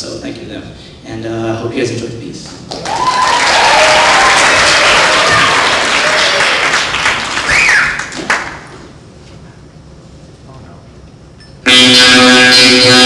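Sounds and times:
high whoops: 2.7 - 8.2
audience applauding and cheering: 2.7 - 8.7.

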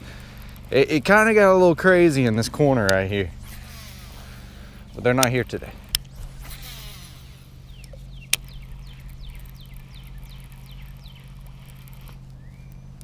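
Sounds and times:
fishing reel click: 0.0 - 1.8, 7.8 - 12.9
low hum: 0.0 - 13.0
bird whistling: 12.4 - 12.9.

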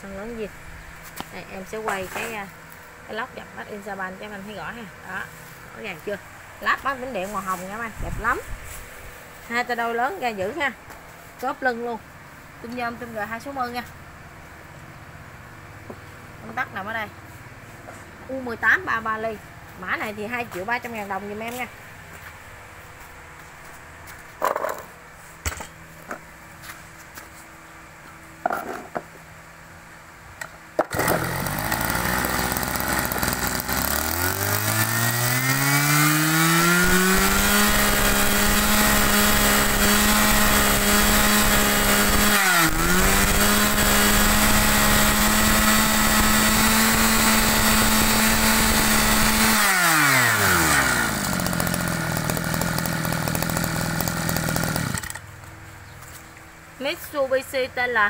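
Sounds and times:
brush cutter engine revving: 1.2 - 2.8, 30.8 - 55.3.

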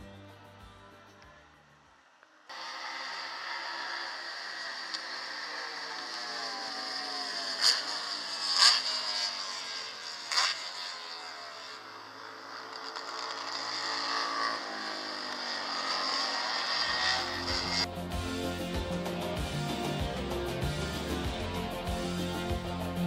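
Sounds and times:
race car engine passing: 2.5 - 18.0.

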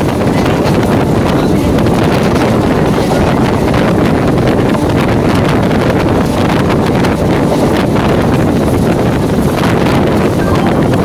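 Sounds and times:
train rumbling at speed: 0.0 - 11.0
wind buffeting microphone: 0.0 - 11.0.

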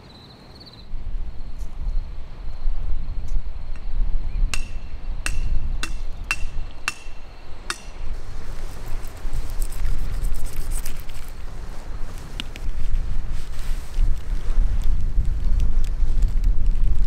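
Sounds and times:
wind on microphone: 0.9 - 17.0
sharp metallic clinks: 4.6 - 8.1.

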